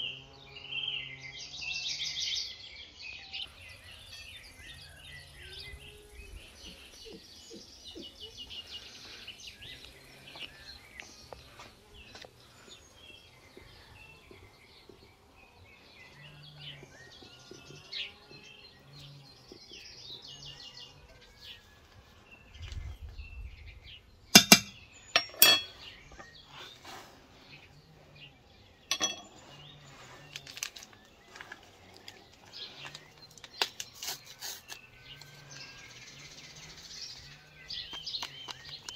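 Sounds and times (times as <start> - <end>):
small birds chirping: 0.0 - 38.9
sharp knocks: 24.4 - 25.7.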